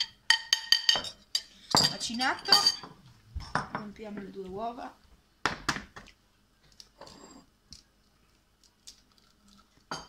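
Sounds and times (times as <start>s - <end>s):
eggshell clicks and rustle: 7.7s - 9.9s.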